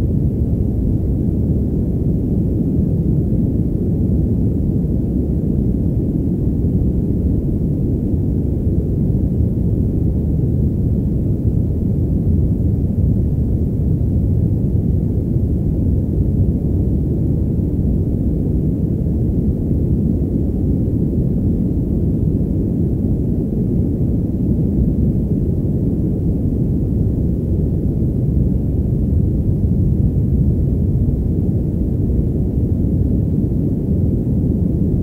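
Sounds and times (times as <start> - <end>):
muffled white noise rumble: 0.0 - 35.0.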